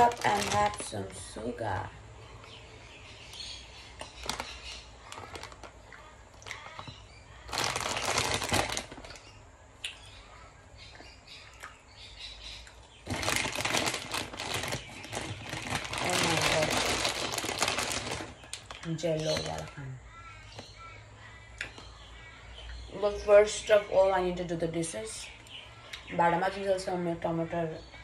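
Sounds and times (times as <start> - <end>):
plastic bag crinkling: 0.0 - 1.6, 4.0 - 9.3, 13.0 - 19.9.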